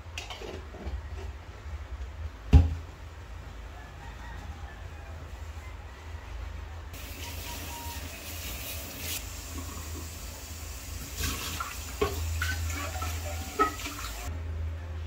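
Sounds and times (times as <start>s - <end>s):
pan knocking against sink: 12.0s - 14.2s.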